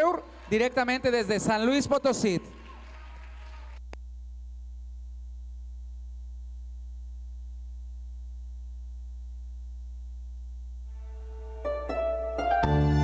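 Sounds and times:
electrical mains hum: 3.8 - 12.4.

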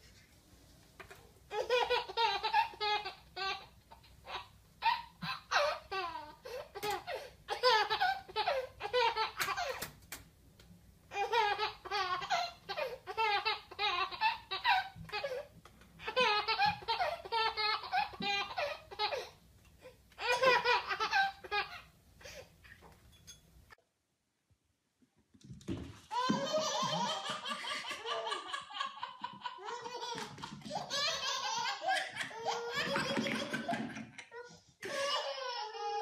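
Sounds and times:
baby laughing: 1.5 - 9.8, 11.1 - 15.4, 16.0 - 19.4, 20.2 - 21.9, 26.1 - 36.0.

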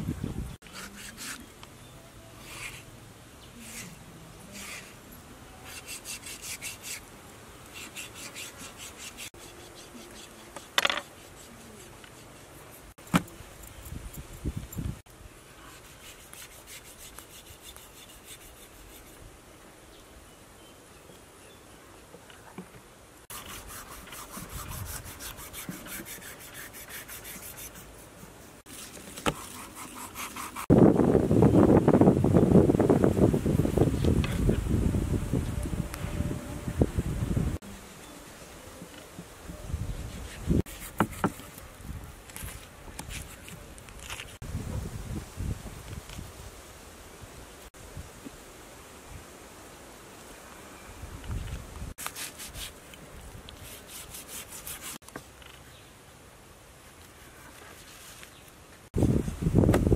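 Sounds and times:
cleaver scraping skin: 28.7 - 30.7.

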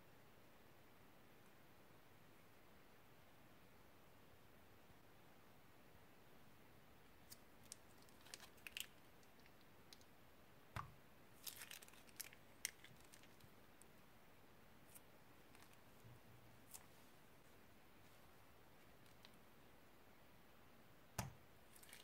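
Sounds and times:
plastic bag crinkling: 7.7 - 9.0, 11.4 - 13.5, 15.5 - 15.9.

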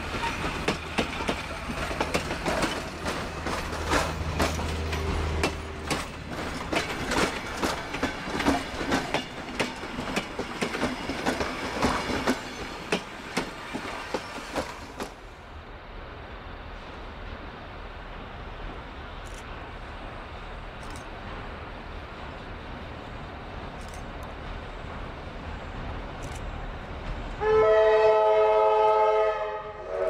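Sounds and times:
train wheels clattering over rail joints: 0.0 - 15.2.

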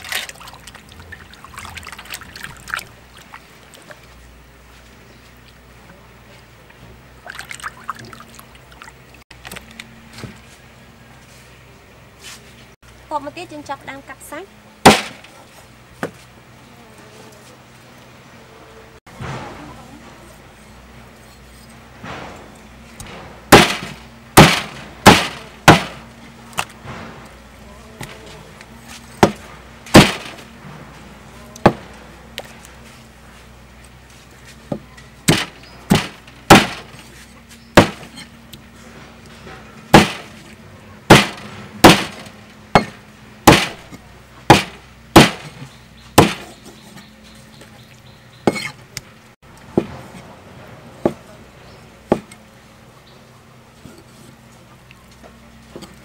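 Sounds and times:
cleaver chopping on wooden board: 14.8 - 15.2, 23.0 - 26.0, 29.2 - 30.4, 34.7 - 37.0, 37.8 - 38.2, 39.9 - 40.3, 41.1 - 43.8, 44.5 - 45.6, 46.2 - 46.7, 48.4 - 48.8, 52.1 - 52.4.

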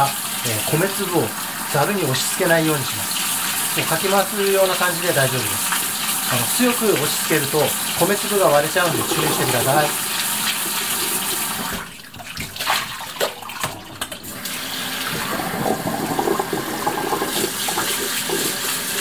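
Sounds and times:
water running and splashing: 0.0 - 19.0.

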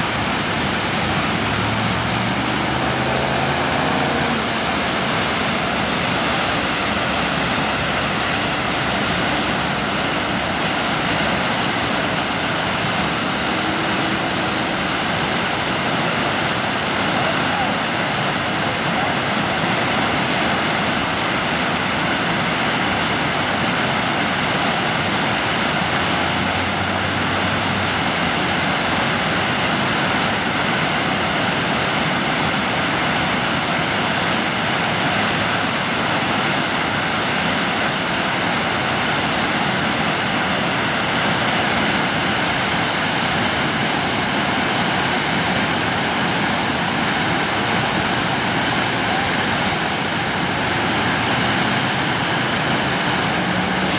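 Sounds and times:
whitewater rushing: 0.0 - 53.9.

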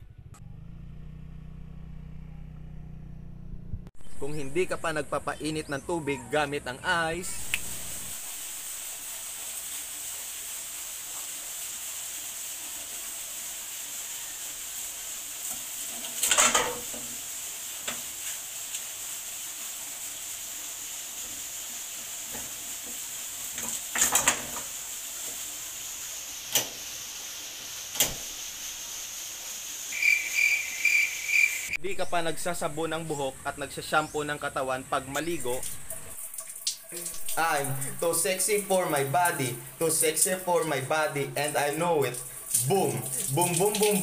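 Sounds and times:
ice cubes clattering into metal pot: 16.2 - 16.9.

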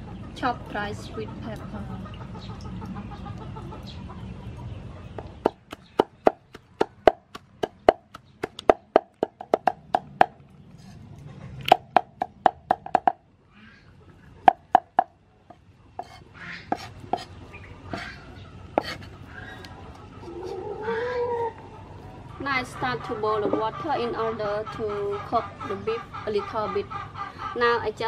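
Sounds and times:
cleaver chopping on wooden block: 5.4 - 10.4, 11.7 - 13.2.

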